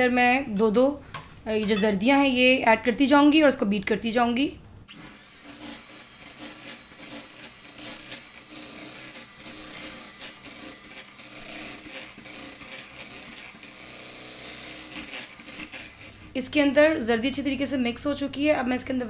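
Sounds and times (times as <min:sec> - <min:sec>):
electric hand mixer running: 0:04.9 - 0:16.4.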